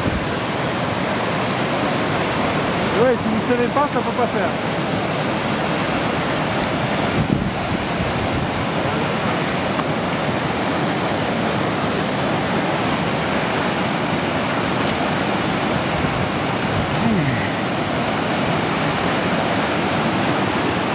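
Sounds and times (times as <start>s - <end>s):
stream rushing over rocks: 0.0s - 20.9s.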